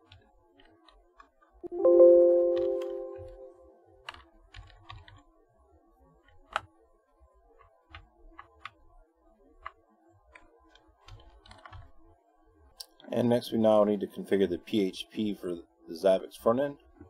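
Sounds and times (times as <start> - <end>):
chime ringing: 1.7 - 3.7
computer keyboard keystrokes: 4.1 - 5.2, 10.4 - 11.9.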